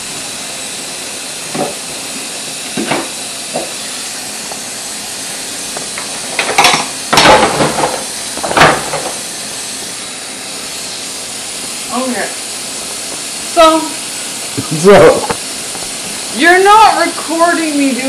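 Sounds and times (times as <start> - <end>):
dishes clattering: 6.4 - 9.2.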